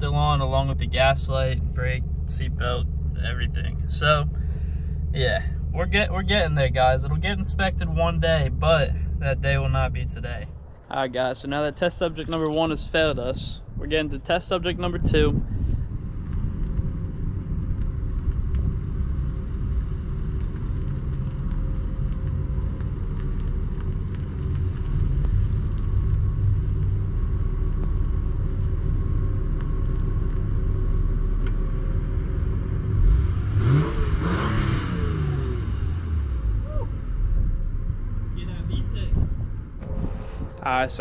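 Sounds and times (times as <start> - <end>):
car engine low rumble: 0.0 - 41.0
engine revving: 32.6 - 37.4.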